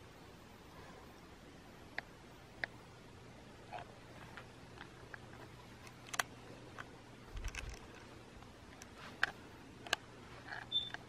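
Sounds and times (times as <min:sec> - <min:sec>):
faint steady hum: 0:00.0 - 0:11.0
handheld camera clicks and ticks: 0:05.8 - 0:08.0.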